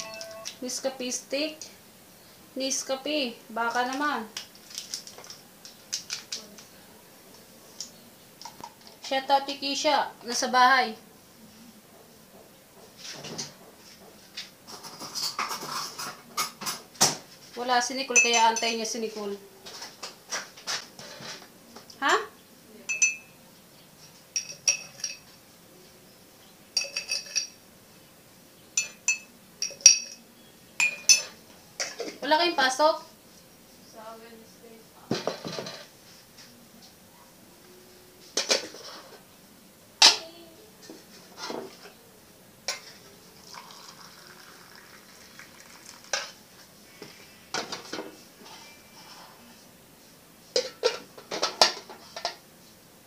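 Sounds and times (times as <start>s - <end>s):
metal spoon clinking against cup: 18.2s - 18.9s, 22.9s - 23.3s, 24.4s - 25.3s, 26.8s - 27.6s, 28.8s - 30.2s, 30.8s - 32.0s.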